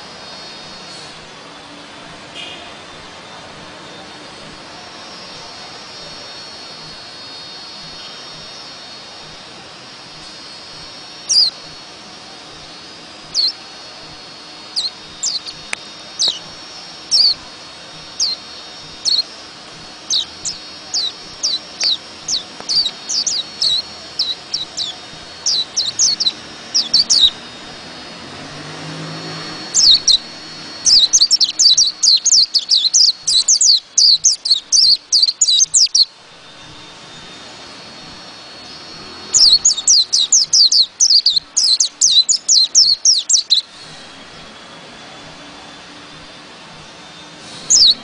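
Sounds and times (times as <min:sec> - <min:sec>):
bird singing high thin chirps: 0:10.2 - 0:11.8, 0:13.2 - 0:13.6, 0:14.6 - 0:27.4, 0:29.3 - 0:36.8, 0:38.6 - 0:44.1, 0:47.5 - 0:48.0.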